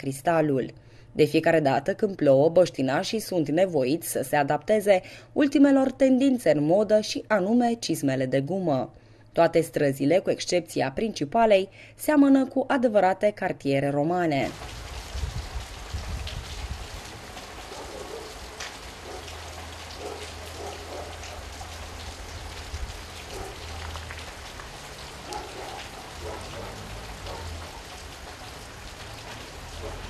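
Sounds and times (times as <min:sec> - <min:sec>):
rain pattering on puddles: 0:14.4 - 0:30.0.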